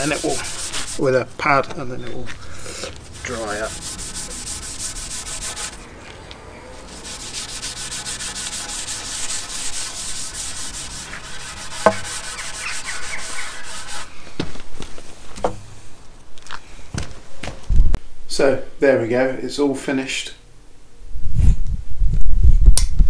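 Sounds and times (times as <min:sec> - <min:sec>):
abrasive pad rubbing wood: 0:00.0 - 0:01.1, 0:02.8 - 0:14.1.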